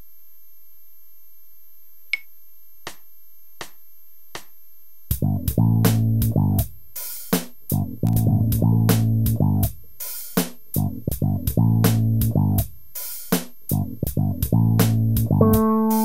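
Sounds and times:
drum machine count-in clicks: 0:02.9 - 0:03.8, 0:08.0 - 0:08.6, 0:14.8 - 0:16.0
drum machine beat: 0:04.4 - 0:16.0
electric bass riff: 0:07.8 - 0:09.7, 0:14.2 - 0:16.0.

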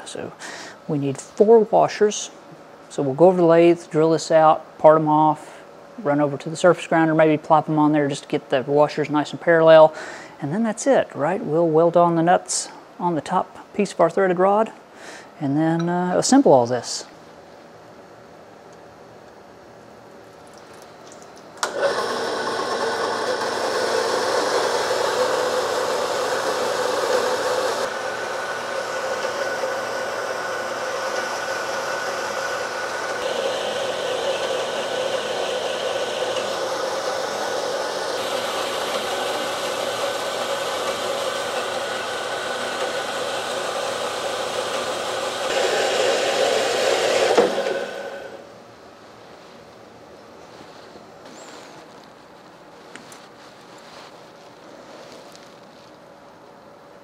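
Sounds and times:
band saw cutting steel bar: 0:21.6 - 0:48.4.

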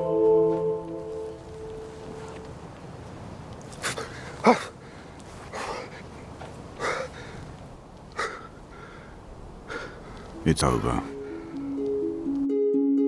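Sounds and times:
person gasping and breathing heavily: 0:03.8 - 0:06.1, 0:08.2 - 0:10.4.

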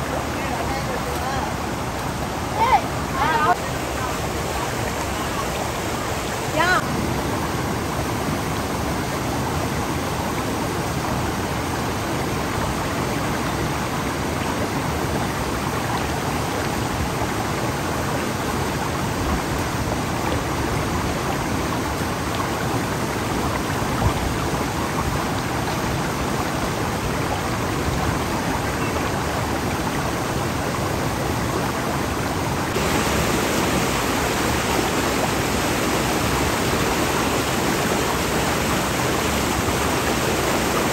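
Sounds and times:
steady rushing noise: 0:31.4 - 0:40.9.

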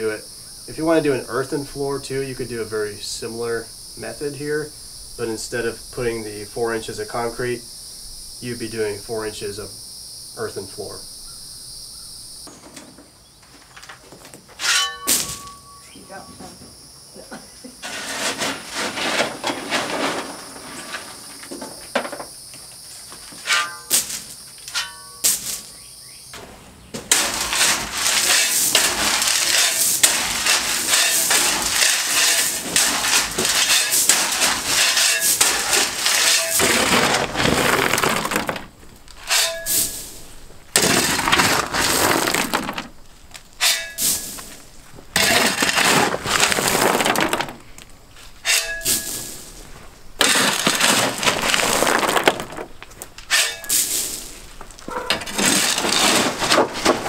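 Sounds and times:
shovel scraping into gravel: 0:14.6 - 0:15.6, 0:17.8 - 0:21.4, 0:23.4 - 0:25.8, 0:26.4 - 0:42.9, 0:43.6 - 0:44.6, 0:45.2 - 0:47.6, 0:48.2 - 0:57.0
gravel pouring and sliding: 0:17.8 - 0:21.6, 0:27.0 - 0:57.0.

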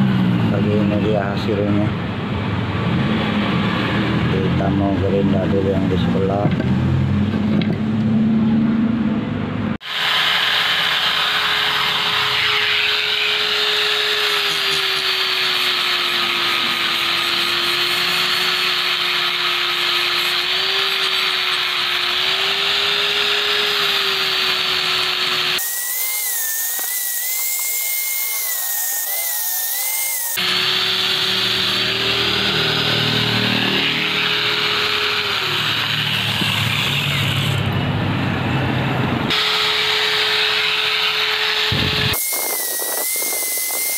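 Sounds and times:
angle grinder grinding metal: 0:09.8 - 0:37.8, 0:39.3 - 0:43.9.

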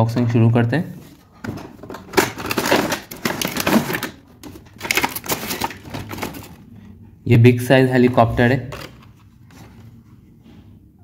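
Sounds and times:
plastic and cardboard crinkling: 0:01.1 - 0:06.8.

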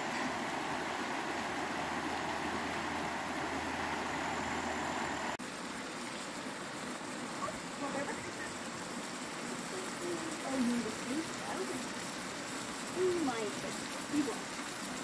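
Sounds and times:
river rushing over rocks: 0:00.0 - 0:05.4.

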